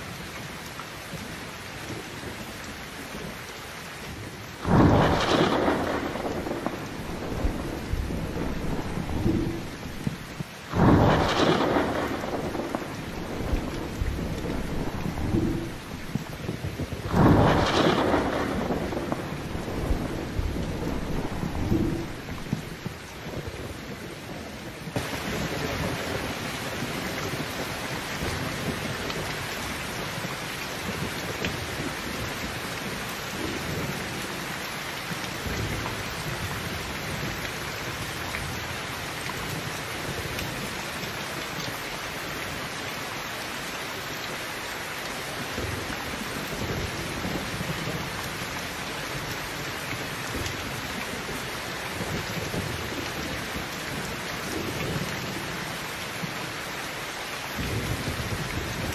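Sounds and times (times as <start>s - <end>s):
heavy rain pouring: 0.0s - 58.9s
low thunder rumble: 4.2s - 34.5s.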